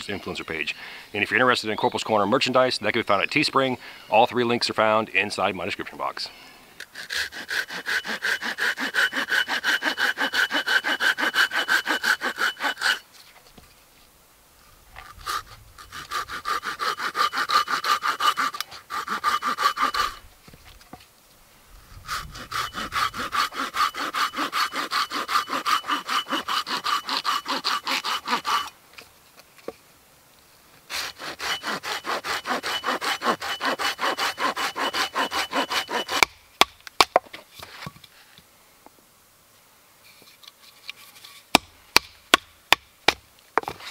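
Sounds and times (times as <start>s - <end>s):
hand saw cutting log: 6.8s - 13.1s, 15.2s - 20.3s, 22.0s - 28.7s, 30.9s - 36.4s.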